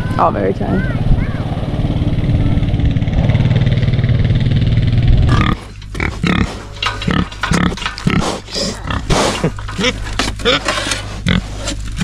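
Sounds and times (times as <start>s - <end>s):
quad bike engine running: 0.0s - 7.7s
pigs grunting and snuffling: 5.2s - 12.0s.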